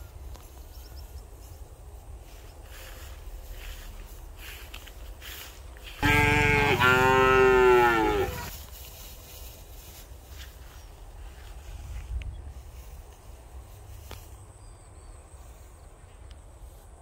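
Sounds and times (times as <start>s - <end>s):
cow mooing: 6.0s - 8.5s.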